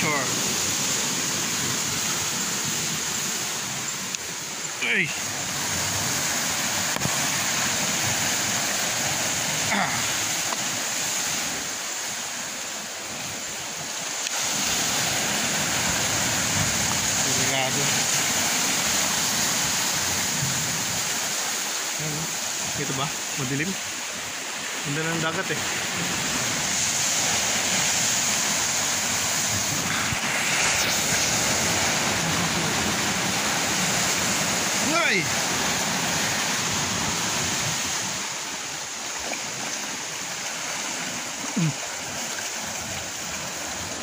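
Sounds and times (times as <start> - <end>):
sea surf: 0.0 - 44.0
wind rumbling on microphone: 14.4 - 21.4, 25.6 - 44.0.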